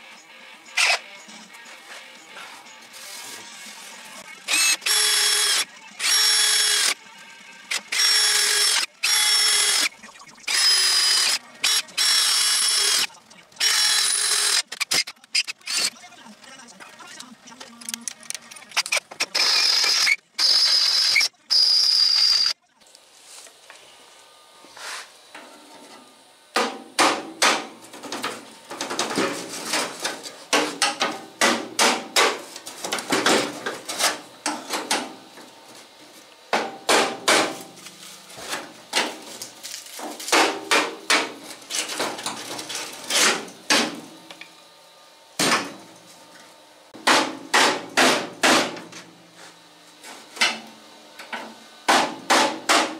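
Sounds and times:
drill squealing into steel: 4.5 - 7.0, 7.7 - 15.9, 18.8 - 22.6.

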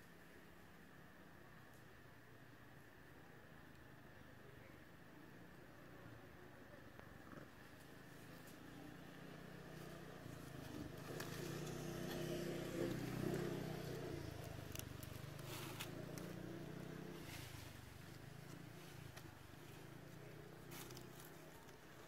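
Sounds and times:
vehicle engine passing: 9.1 - 21.7.

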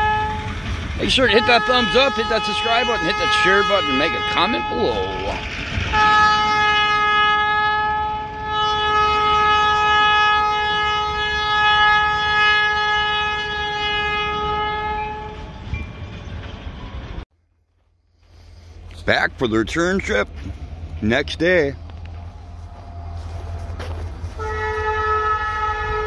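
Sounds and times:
locomotive air horn blast: 0.0 - 15.5, 23.1 - 26.0
train rumble: 0.0 - 26.0.

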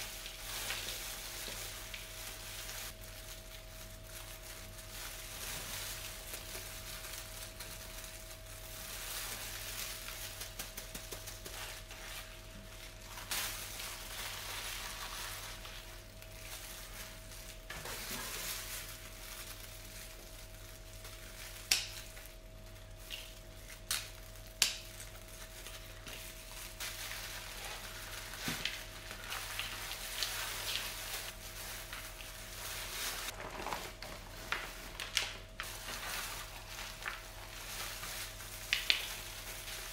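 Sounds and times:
potting soil rustling and scraping: 25.7 - 39.9.

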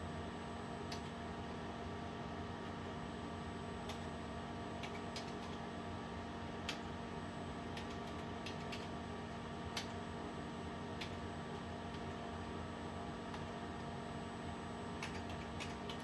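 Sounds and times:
steady low hum: 0.0 - 16.0
computer keyboard keystrokes: 0.9 - 1.2, 3.8 - 4.1, 4.8 - 5.6, 6.6 - 6.9, 7.7 - 9.0, 9.7 - 10.0, 11.0 - 12.2, 13.3 - 13.6, 14.9 - 16.0.

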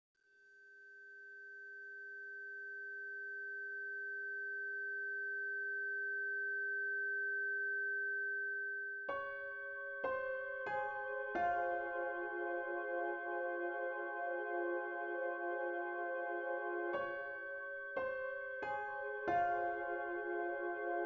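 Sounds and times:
keyboard notes: 9.1 - 21.0.

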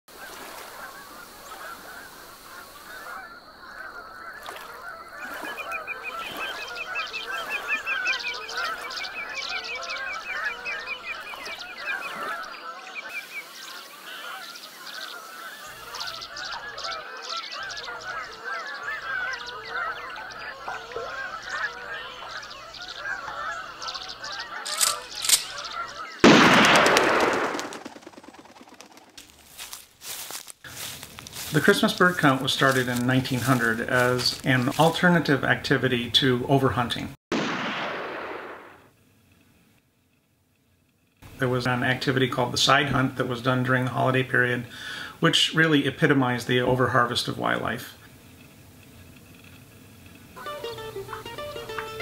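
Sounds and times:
geese honking: 0.1 - 36.9, 50.3 - 52.0
fast rattling bird trill: 0.9 - 31.5.

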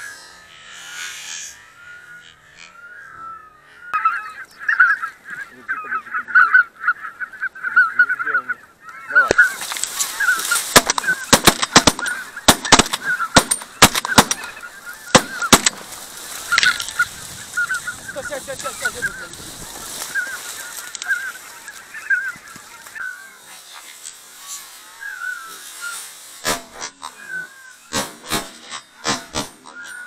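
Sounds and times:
geese honking: 0.0 - 30.0
reed stems brushing and cracking: 8.9 - 30.0.

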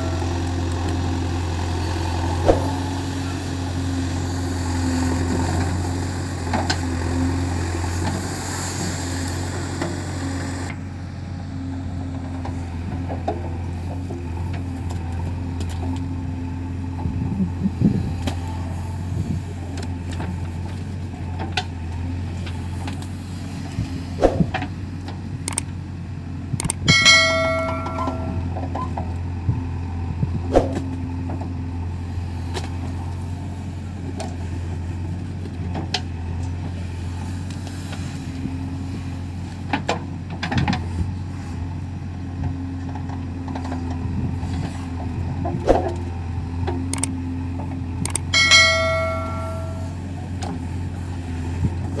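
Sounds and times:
diesel engine droning: 0.0 - 52.0
bell-like chime: 26.9 - 28.5, 48.4 - 50.0.

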